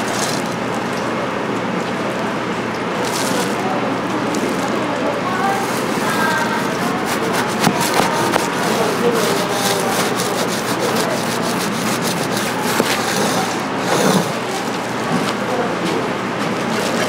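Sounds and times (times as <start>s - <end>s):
scraping and rubbing: 3.0s - 15.4s.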